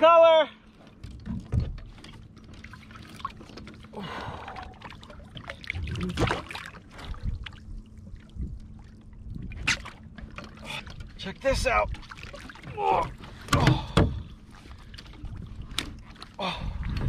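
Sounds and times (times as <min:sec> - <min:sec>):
water splashing around kayak: 0:00.0 - 0:17.0.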